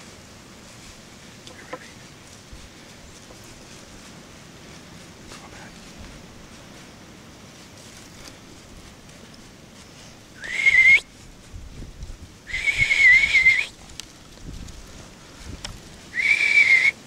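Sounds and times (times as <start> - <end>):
person whistling: 10.4 - 11.1, 12.5 - 13.7, 16.2 - 17.0.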